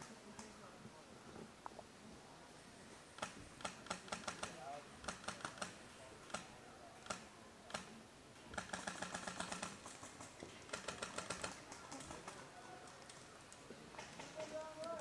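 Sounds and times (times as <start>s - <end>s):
rapid strings of clicks: 8.5s - 15.0s.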